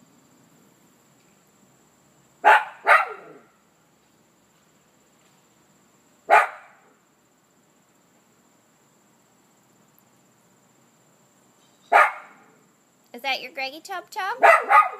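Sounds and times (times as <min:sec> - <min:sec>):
small dog barking: 0:02.4 - 0:03.5, 0:06.3 - 0:06.8, 0:11.9 - 0:12.5, 0:14.4 - 0:14.9.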